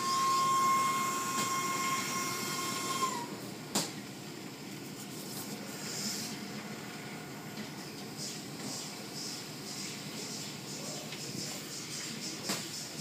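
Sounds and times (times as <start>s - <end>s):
car wash machinery whine: 0.0s - 13.0s.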